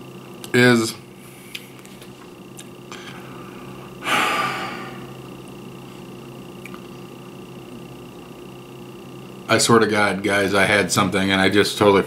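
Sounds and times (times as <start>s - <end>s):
man sighing: 2.9s - 5.2s.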